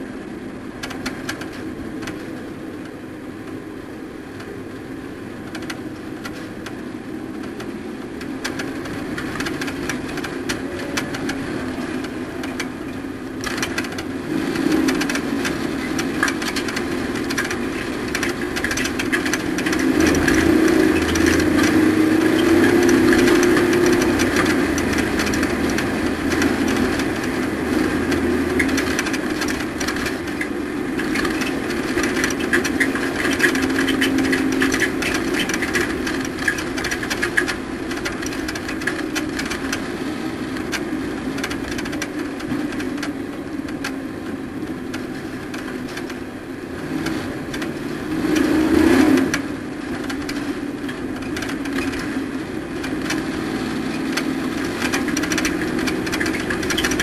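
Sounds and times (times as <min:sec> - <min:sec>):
truck engine running: 0:00.0 - 0:57.0
rattling clatter: 0:05.4 - 0:44.0, 0:49.1 - 0:57.0.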